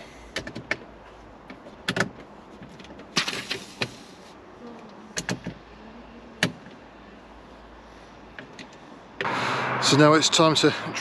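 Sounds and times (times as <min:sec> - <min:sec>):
sharp clicks and knocks: 0:00.3 - 0:04.0, 0:05.2 - 0:05.6.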